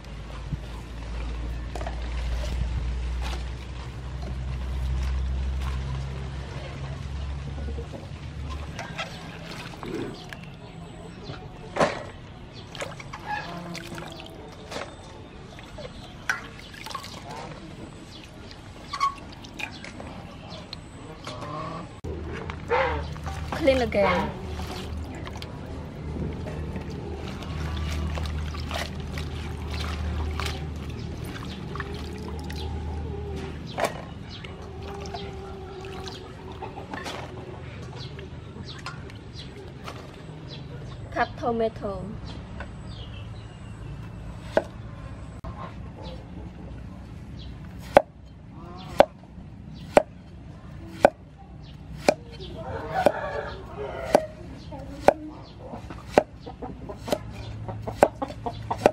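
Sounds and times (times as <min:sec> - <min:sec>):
water splashing and dripping: 0:00.0 - 0:11.5, 0:12.1 - 0:21.0, 0:22.4 - 0:41.0
hands swishing vegetables in water: 0:23.0 - 0:25.6, 0:26.3 - 0:32.8
cleaver chopping on wooden board: 0:47.8 - 0:48.1, 0:49.8 - 0:50.1, 0:52.0 - 0:52.2, 0:56.0 - 0:56.4, 0:57.0 - 0:57.3, 0:57.9 - 0:58.2.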